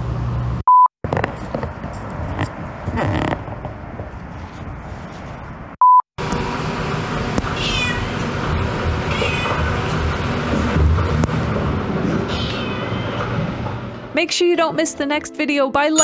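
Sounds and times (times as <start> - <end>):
cat meowing: 7.6 - 8.2, 9.1 - 9.7, 12.3 - 13.2.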